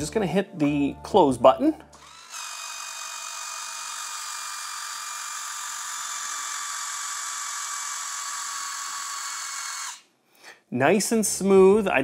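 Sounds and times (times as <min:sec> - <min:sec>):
electric valve motor whining: 0:02.0 - 0:10.1.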